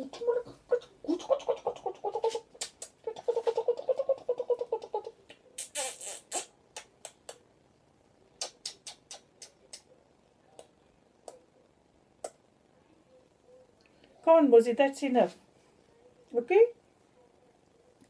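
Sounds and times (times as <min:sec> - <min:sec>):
parrot kissing smacks: 0:02.2 - 0:03.0, 0:08.4 - 0:09.9
parrot beak clicks: 0:08.4 - 0:09.9.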